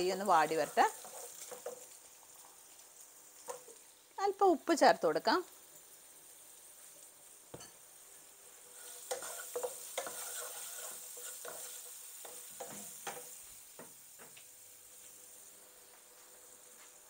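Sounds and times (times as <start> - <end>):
onions sizzling: 0.0 - 17.0
wooden spatula scraping a pan: 0.3 - 2.6, 8.6 - 13.4.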